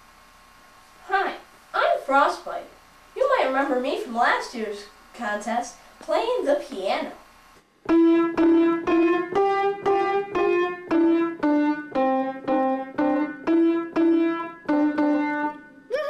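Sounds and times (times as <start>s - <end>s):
piano single-note melody: 7.9s - 15.9s.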